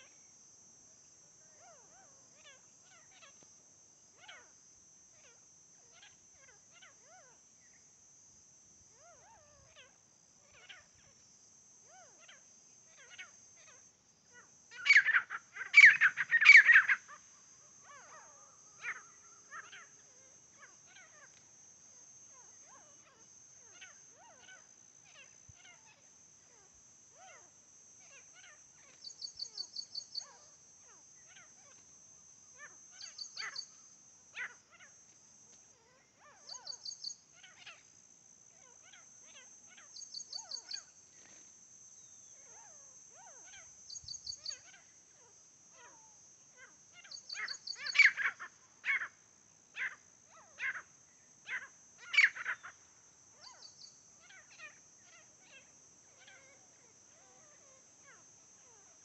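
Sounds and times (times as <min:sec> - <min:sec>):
francolins calling: 0:11.9 - 0:21.4, 0:22.3 - 0:31.8, 0:32.6 - 0:34.9, 0:35.8 - 0:41.3, 0:42.0 - 0:59.0.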